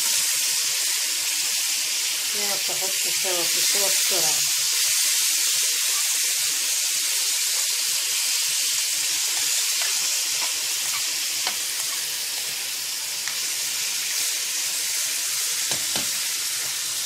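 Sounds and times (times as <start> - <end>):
liver sizzling in hot oil: 0.0 - 17.0.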